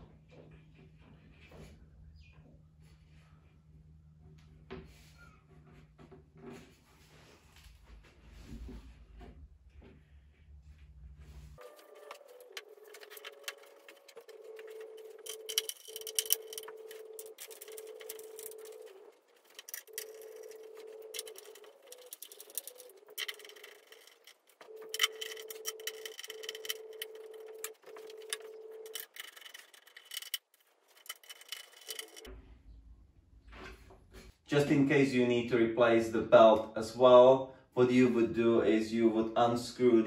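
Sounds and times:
screwdriver clicking and scraping: 11.8 - 32.3.

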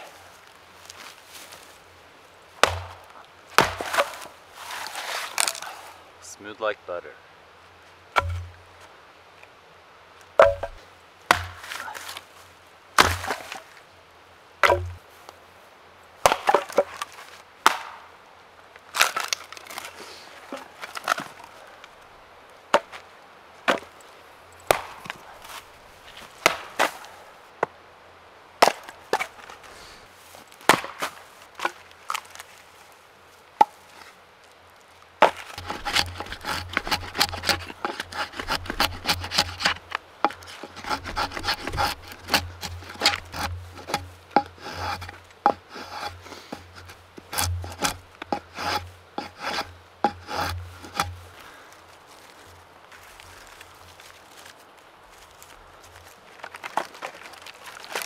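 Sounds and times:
hatchet chopping wood: 2.6 - 4.2, 8.2 - 8.6, 10.4 - 11.9, 13.0 - 13.5, 14.6 - 15.0, 16.2 - 16.9, 17.6 - 18.0, 24.7 - 25.2, 35.2 - 51.2
hatchet short strokes on stick: 35.6 - 51.2.

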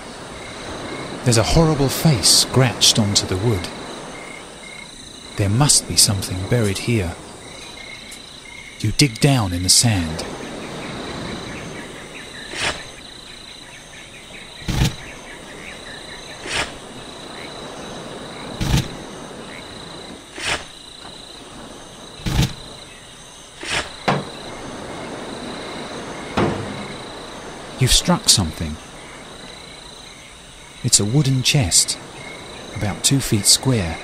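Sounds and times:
crickets chirring: 0.0 - 34.0
digging in sand: 12.4 - 13.0, 14.6 - 15.1, 16.4 - 16.9, 18.5 - 19.2, 20.3 - 20.8, 22.2 - 22.8, 23.5 - 24.4.

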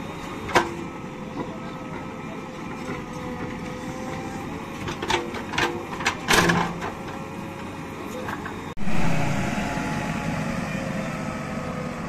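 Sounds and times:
diesel engine running: 0.0 - 12.0
thin steady whine: 7.1 - 12.0.

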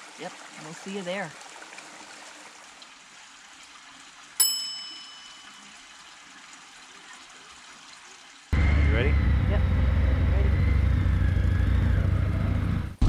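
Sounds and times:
bright metallic ding: 4.4 - 5.6.

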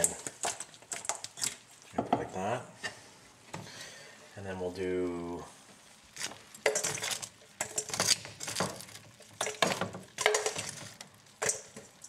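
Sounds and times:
metal tongs clinking on metal bowl: 6.6 - 8.8, 9.4 - 10.8, 11.4 - 12.0.

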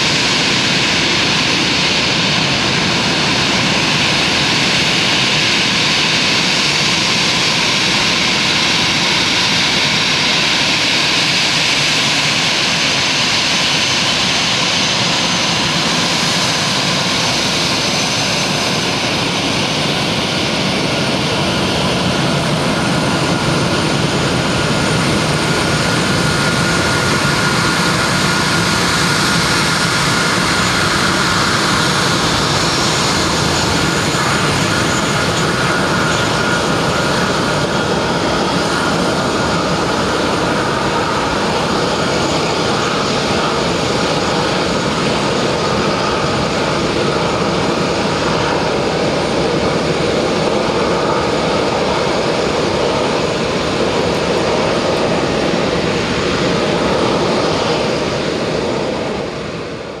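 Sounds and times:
jet engines roaring with whine: 0.0 - 60.0.

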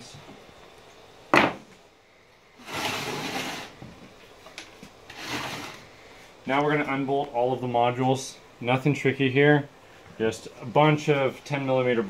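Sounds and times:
parts scraping on wooden workbench: 2.6 - 3.9, 5.1 - 5.9.

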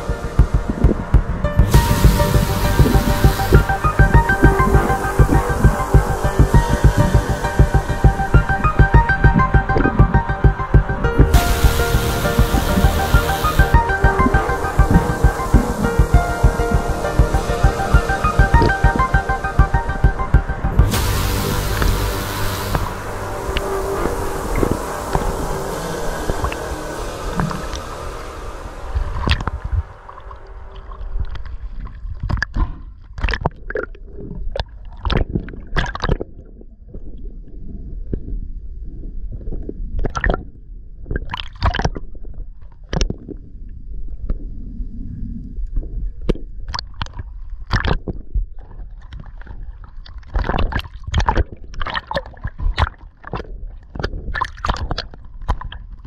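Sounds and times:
steady low rumble: 0.0 - 33.1
water gurgling and sloshing: 0.0 - 56.0.

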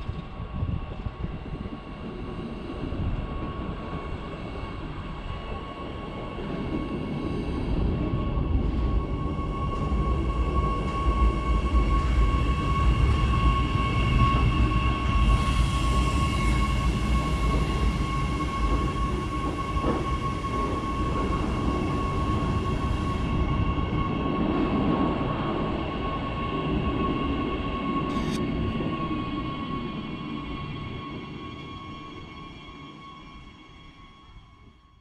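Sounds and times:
electrical high whine: 27.0 - 33.5.

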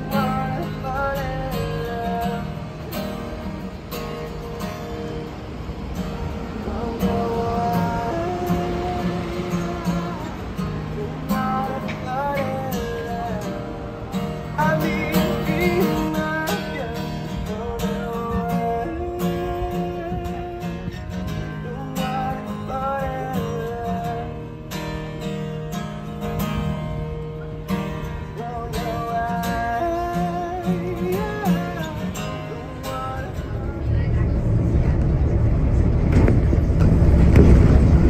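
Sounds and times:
acoustic guitar strumming: 0.0 - 38.0
person singing: 6.6 - 20.9.

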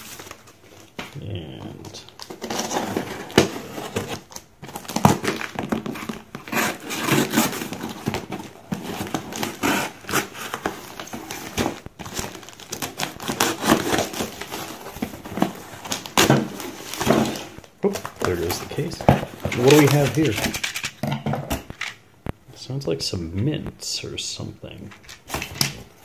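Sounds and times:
plastic bag crinkling: 0.0 - 21.0
cardboard box rustling: 1.8 - 20.9.

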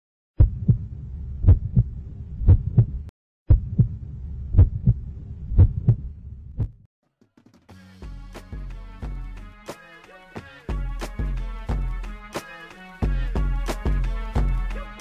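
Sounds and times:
heartbeat thuds: 0.4 - 6.9.

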